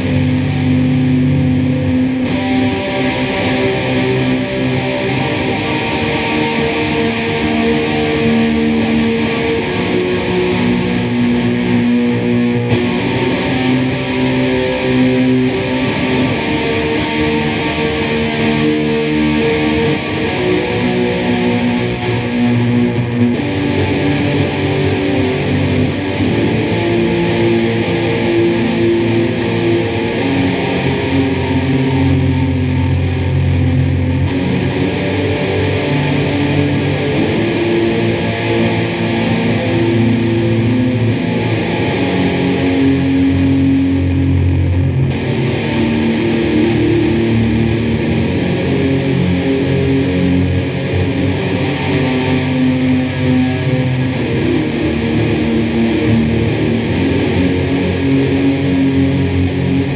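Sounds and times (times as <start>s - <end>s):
distorted electric guitar metal: 0.0s - 59.9s.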